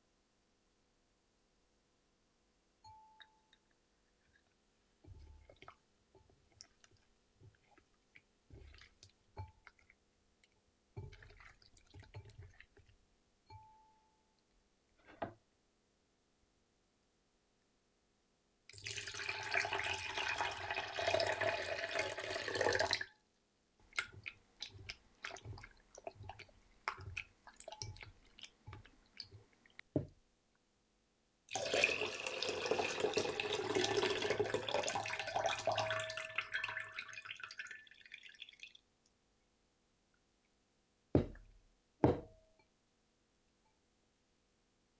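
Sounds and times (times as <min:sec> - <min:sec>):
hand swishing shrimp in water: 0:06.6 - 0:09.9, 0:11.0 - 0:12.9, 0:23.8 - 0:29.8
water pouring into glass bowl: 0:18.7 - 0:23.1, 0:23.9 - 0:29.4, 0:31.5 - 0:38.8.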